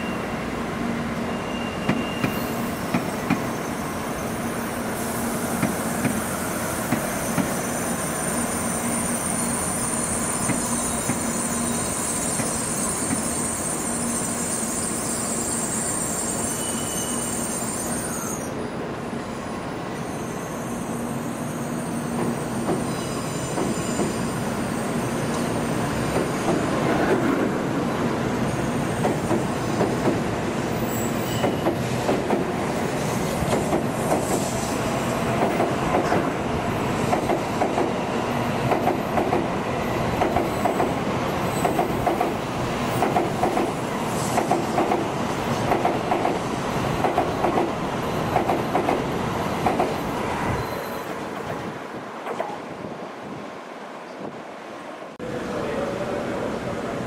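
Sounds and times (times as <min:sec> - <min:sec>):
train rumbling past: 0:00.0 - 0:57.0
train wheels clacking: 0:29.0 - 0:30.2, 0:31.2 - 0:32.5, 0:37.1 - 0:38.0, 0:40.2 - 0:41.0, 0:41.6 - 0:42.4, 0:43.0 - 0:50.0.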